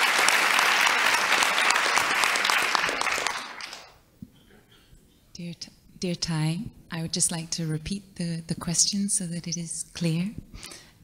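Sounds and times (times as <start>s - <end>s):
audience applauding: 0.0s - 4.0s.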